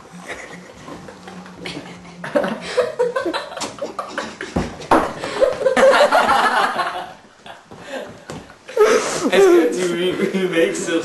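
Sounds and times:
people laughing: 0.1 - 7.2.

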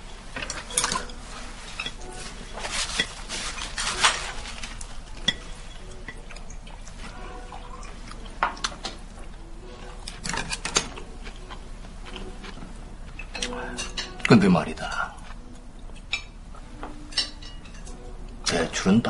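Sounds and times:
tableware clinking on a table: 0.4 - 6.4, 16.1 - 18.8.

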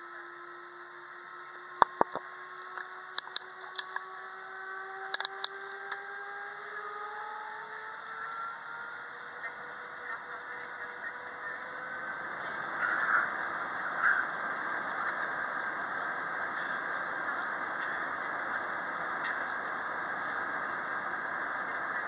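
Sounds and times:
jet engine whine in cabin: 0.0 - 22.0
sharp clicks and knocks: 1.8 - 2.2, 2.8 - 4.0, 5.1 - 5.6.

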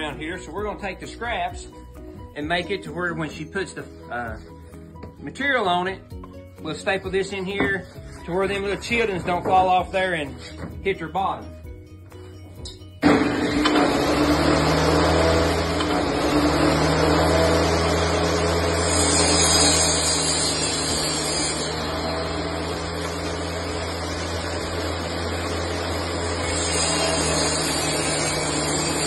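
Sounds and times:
table saw cutting boards: 6.7 - 11.2, 13.0 - 29.0.

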